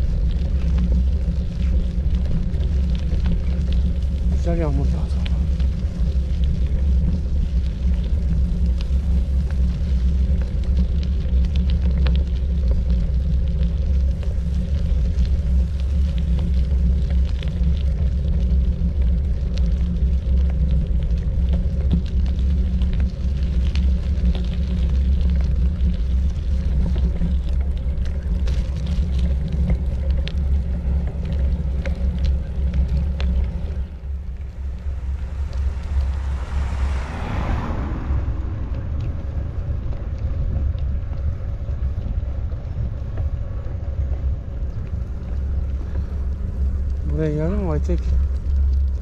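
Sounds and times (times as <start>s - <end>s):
wind buffeting microphone: 0.0s - 49.0s
brief whoosh: 34.2s - 40.4s.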